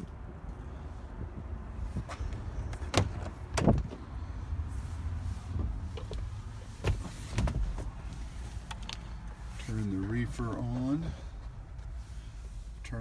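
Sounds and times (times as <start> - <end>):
steady low rumble: 0.0 - 13.0
truck cab door knocks and clunks: 2.6 - 4.1, 5.5 - 8.0.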